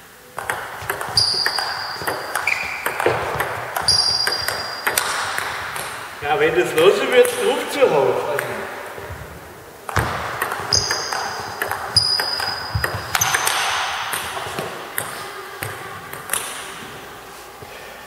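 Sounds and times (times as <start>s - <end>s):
table tennis ball clicks: 0.4s - 6.1s, 9.9s - 16.6s
shoe squeaks on floor: 1.2s - 3.1s, 3.8s - 5.0s, 10.7s - 13.5s.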